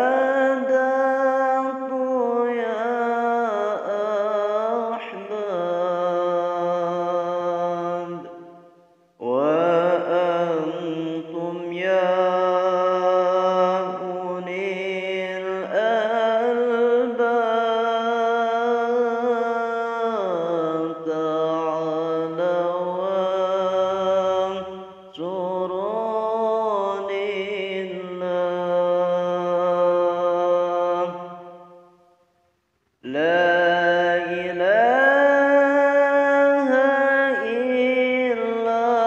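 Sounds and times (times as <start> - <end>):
man chanting: 0.0 - 8.5, 9.2 - 31.7, 33.0 - 39.0.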